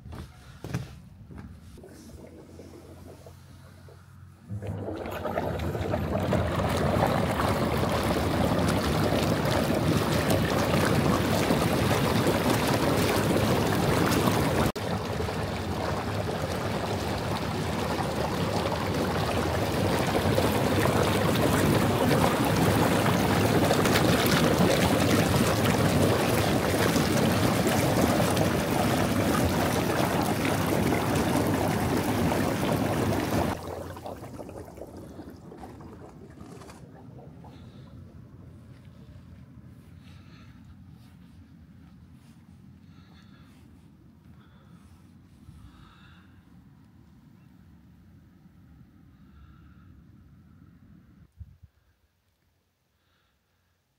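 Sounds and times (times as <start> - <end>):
hot tub jets bubbling water: 1.8 - 38.8.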